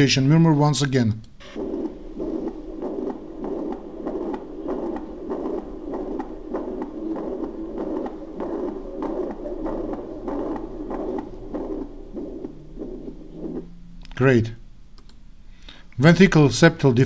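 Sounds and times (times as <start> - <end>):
whooshing heart murmur: 1.4 - 14.2.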